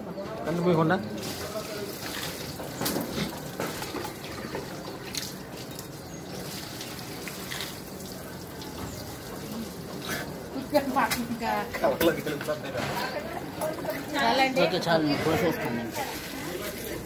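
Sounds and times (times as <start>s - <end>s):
water splashing on concrete: 1.1s - 12.6s, 15.9s - 17.0s.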